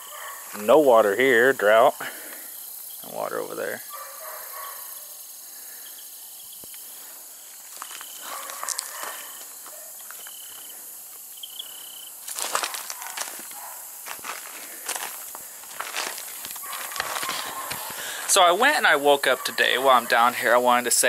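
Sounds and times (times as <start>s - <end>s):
steady high hiss: 0.0s - 21.0s
footsteps on loose rocks: 7.5s - 10.7s, 12.2s - 18.1s.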